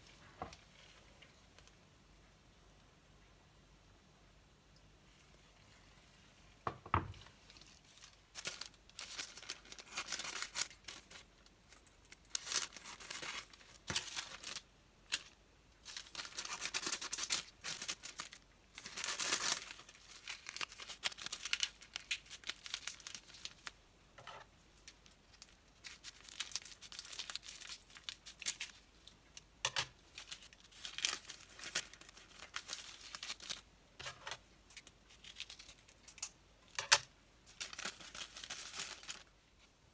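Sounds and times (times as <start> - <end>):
paper rustling and crinkling: 7.2 - 23.8, 30.1 - 36.2, 36.9 - 39.3.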